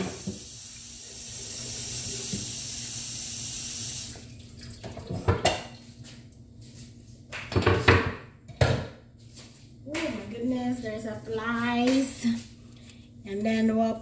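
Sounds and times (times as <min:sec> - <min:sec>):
tap running water into sink: 0:00.0 - 0:05.7.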